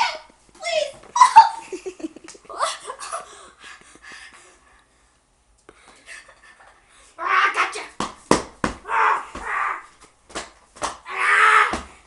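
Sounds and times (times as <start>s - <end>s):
child laughing: 0.0s - 3.3s.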